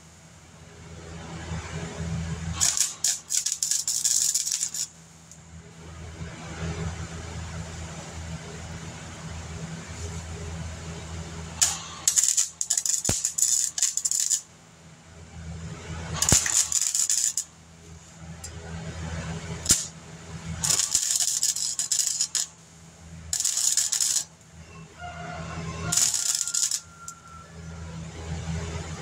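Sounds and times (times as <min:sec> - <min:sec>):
steady low hum: 0:00.0 - 0:29.0
crackling welding arc: 0:01.0 - 0:05.4, 0:09.1 - 0:14.6, 0:15.6 - 0:28.4.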